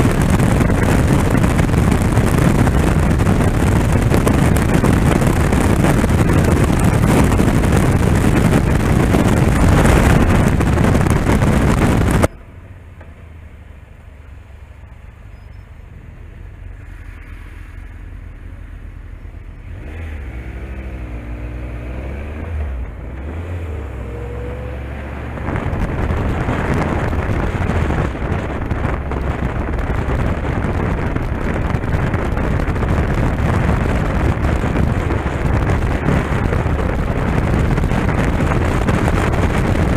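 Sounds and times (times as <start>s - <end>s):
wind noise on microphone: 0.0s - 12.4s, 15.4s - 39.9s
motorcycle engine: 0.0s - 17.8s.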